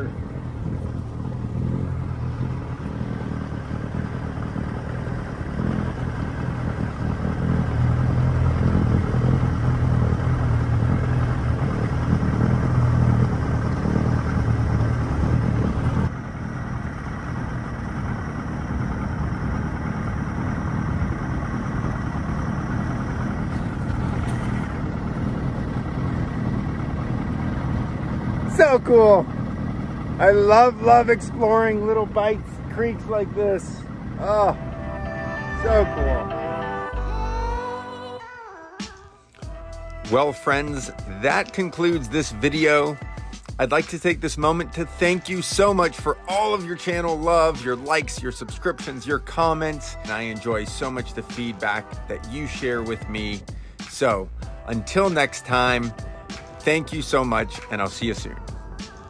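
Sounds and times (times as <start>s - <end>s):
two-stroke outboard motor running: 0.0s - 36.2s.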